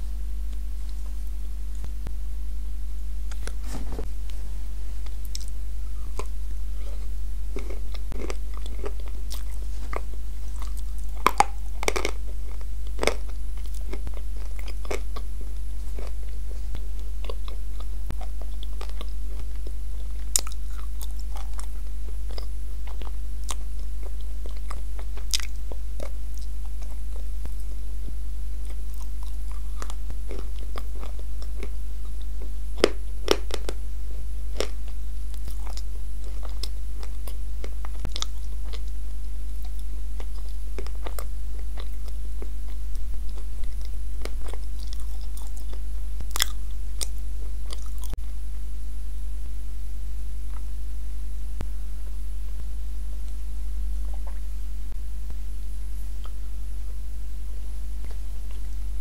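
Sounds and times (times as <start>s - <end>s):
steady low hum: 0.0s - 59.0s
crunchy chewing: 5.0s - 27.8s, 28.6s - 33.8s, 34.5s - 48.2s, 58.0s - 58.9s.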